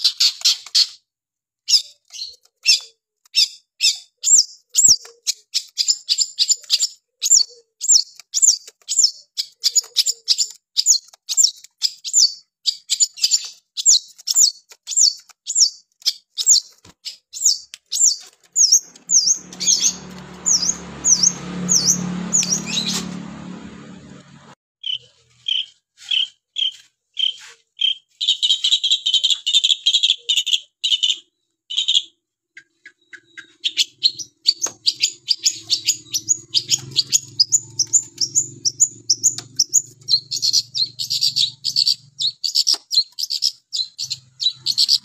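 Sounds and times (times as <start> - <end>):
shrike calling: 18.0 - 23.2, 32.9 - 45.0.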